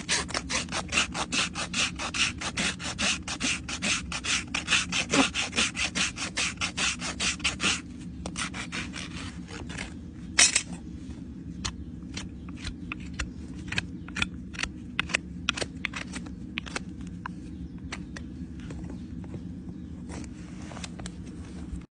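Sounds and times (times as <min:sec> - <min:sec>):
hoof rasp filing: 0:00.0 - 0:07.8, 0:08.4 - 0:09.4
low steady hum: 0:00.0 - 0:21.9.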